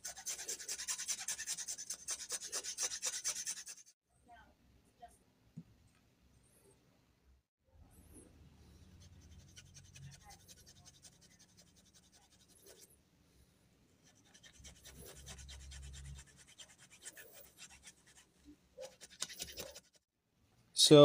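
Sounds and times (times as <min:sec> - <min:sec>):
needle file rasping: 0:00.0 - 0:04.0, 0:08.8 - 0:12.9, 0:14.0 - 0:20.0.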